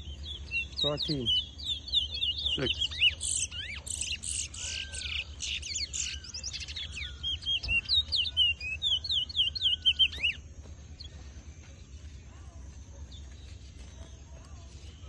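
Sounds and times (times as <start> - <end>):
bird chirping and whistling: 0.0 - 10.4.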